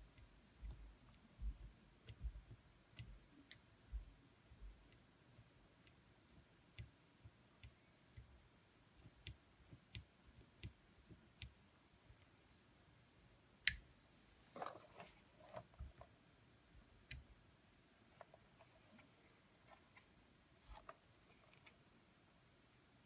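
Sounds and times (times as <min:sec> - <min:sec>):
faint small clicks: 0:02.9 - 0:03.7.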